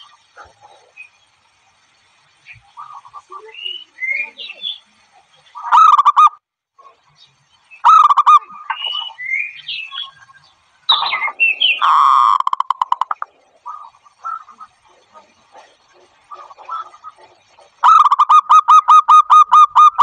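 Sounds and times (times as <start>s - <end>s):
small birds chirping: 0.0s - 20.0s
doves cooing: 7.8s - 9.2s, 10.9s - 20.0s.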